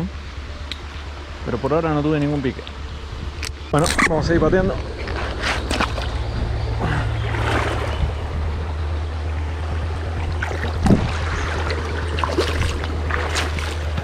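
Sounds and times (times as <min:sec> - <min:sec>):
low rumble: 0:00.0 - 0:14.0
footsteps splashing in water: 0:05.3 - 0:06.2, 0:10.2 - 0:14.0.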